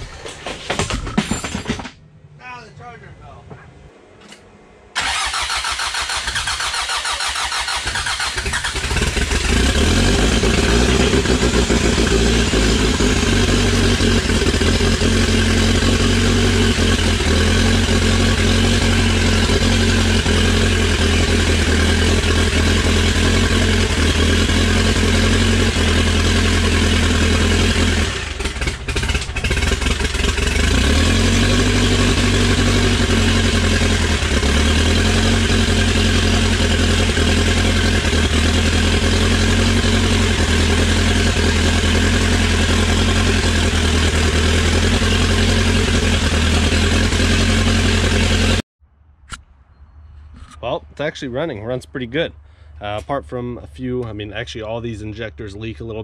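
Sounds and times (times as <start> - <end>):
diesel engine running: 0.0 - 48.6
starter motor cranking: 5.0 - 13.4.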